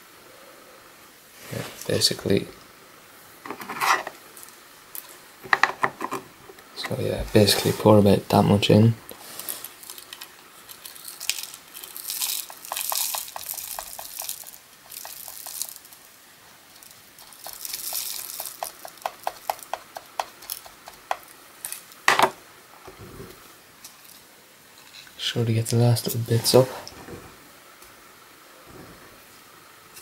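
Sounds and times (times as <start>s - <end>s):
rice hulls pouring into tube: 9.1s - 22.0s.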